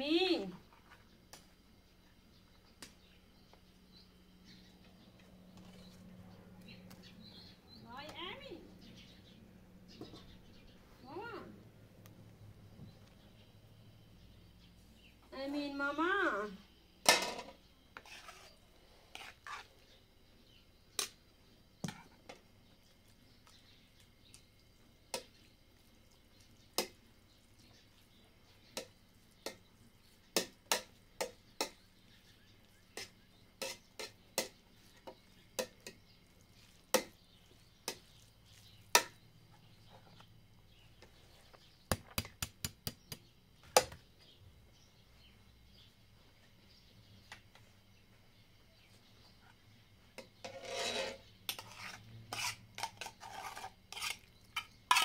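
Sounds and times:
metal utensils clinking on pots: 50.2 - 55.0.

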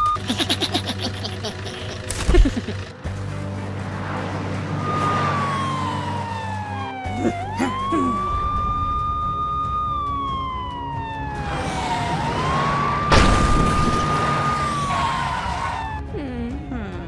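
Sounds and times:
background music: 0.2 - 17.0
police siren wailing: 4.7 - 17.0.

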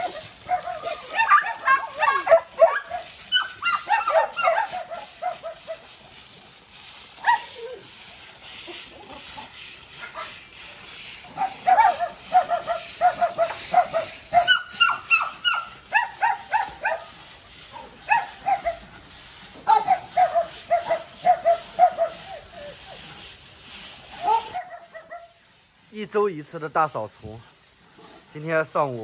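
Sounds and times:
dogs barking: 0.0 - 6.0, 7.2 - 7.8, 9.1 - 10.4, 11.3 - 18.9, 19.6 - 22.9, 24.2 - 25.4.

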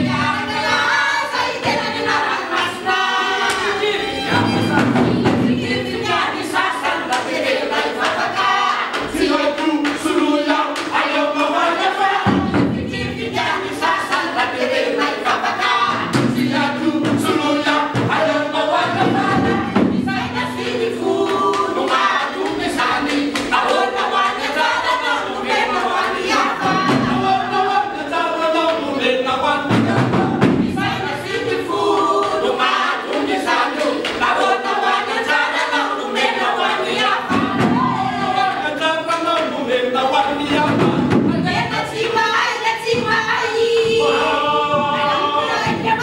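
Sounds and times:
hand drum: 0.0 - 7.3, 11.8 - 27.9, 29.7 - 31.6, 36.6 - 38.6, 40.6 - 46.0
group singing in harmony: 0.0 - 46.0
violin: 1.7 - 6.4.

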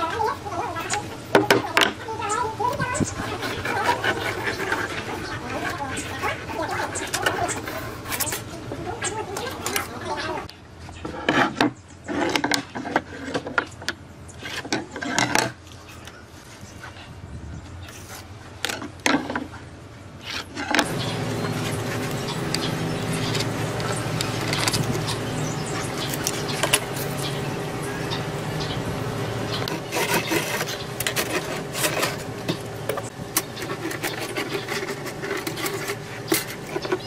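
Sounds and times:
steady machine hum: 20.8 - 37.0.

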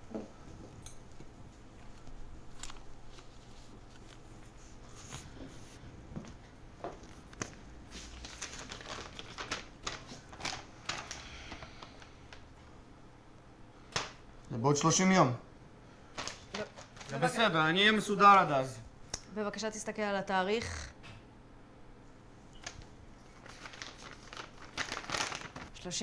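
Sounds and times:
paper rustling and crinkling: 1.8 - 5.8, 7.0 - 12.4, 16.1 - 17.4, 22.6 - 26.0.

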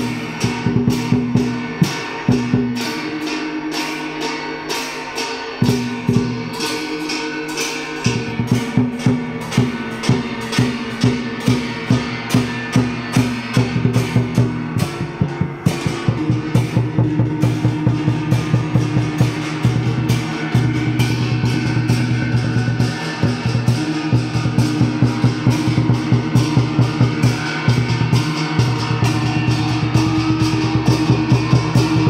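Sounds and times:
sharp drum strokes: 0.0 - 32.0
tuned gongs ringing: 0.0 - 32.0.

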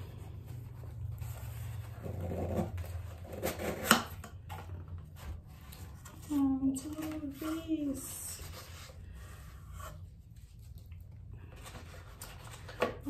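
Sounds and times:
cardboard box scraping and rustling: 0.0 - 10.1.

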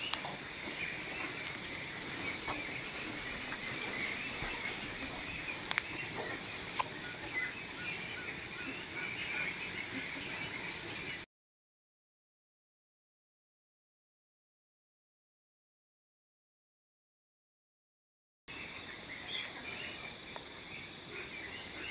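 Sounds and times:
many ducks calling: 0.0 - 11.2, 18.5 - 21.9.

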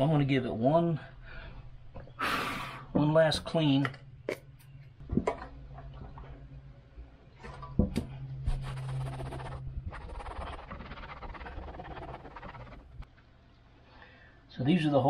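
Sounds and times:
towel rubbing on roof: 8.4 - 13.0.

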